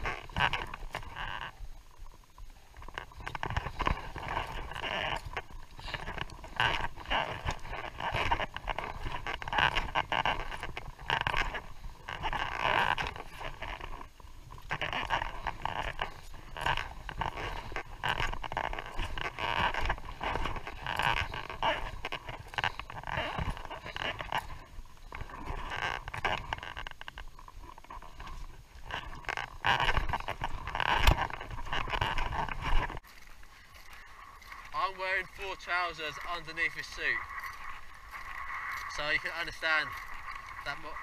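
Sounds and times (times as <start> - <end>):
footsteps crunching on gravel: 28.9 - 41.0.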